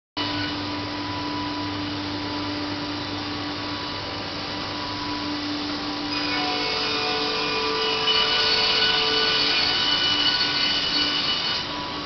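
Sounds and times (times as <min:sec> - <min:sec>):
motor hum and whine: 0:00.2 - 0:12.0
woodworking machine rushing: 0:06.1 - 0:12.0.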